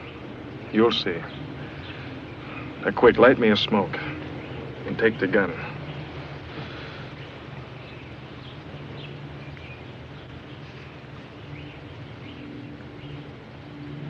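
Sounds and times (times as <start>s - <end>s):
low hum and hiss: 0.0s - 14.0s
bird chirps: 6.9s - 14.0s.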